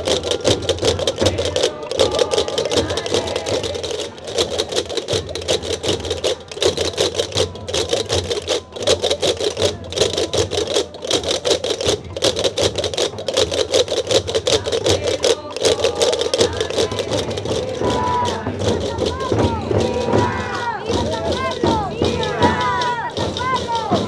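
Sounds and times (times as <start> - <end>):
wooden castanets clattering: 0.0 - 19.1
hand drums beating: 0.0 - 24.0.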